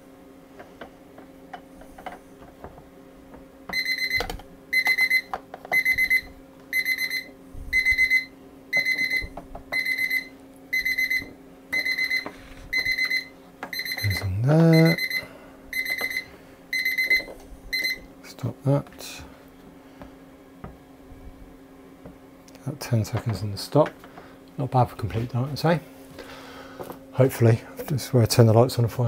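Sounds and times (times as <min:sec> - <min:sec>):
timer alarm beeping: 0:03.7 - 0:18.1
person humming: 0:14.0 - 0:15.0.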